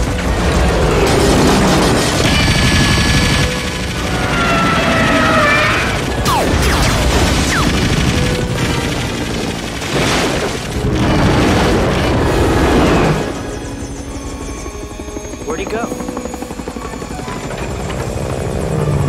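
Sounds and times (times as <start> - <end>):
dramatic orchestral music: 0.0 - 19.0
gunfire bursts: 6.2 - 13.4.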